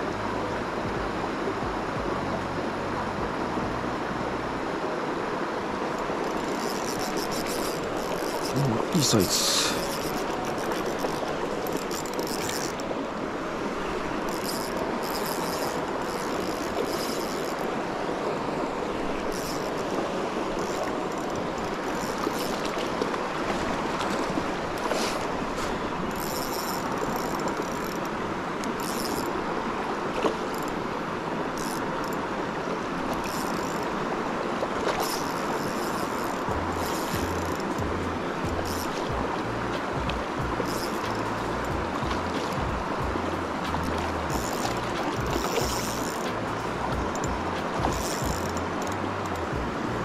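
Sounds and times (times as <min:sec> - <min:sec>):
river running over stones: 0:00.0 - 0:50.0
fishing reel whirring: 0:05.9 - 0:17.8, 0:18.9 - 0:22.9, 0:26.0 - 0:29.5, 0:30.3 - 0:30.8, 0:31.4 - 0:32.2, 0:32.9 - 0:34.1, 0:34.8 - 0:50.0.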